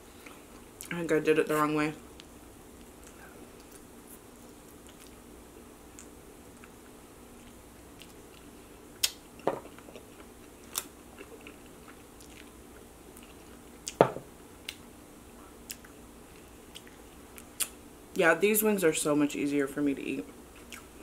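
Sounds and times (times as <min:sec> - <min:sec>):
chewing: 0:03.0 - 0:05.2, 0:05.9 - 0:12.6, 0:13.2 - 0:14.0.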